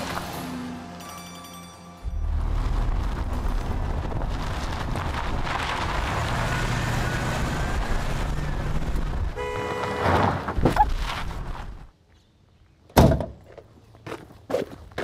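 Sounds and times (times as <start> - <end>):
horn honk: 9.3 - 10.5.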